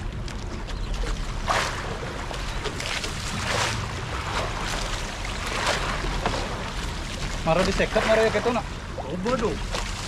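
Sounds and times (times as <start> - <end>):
water slapping against boat hull: 0.0 - 10.0.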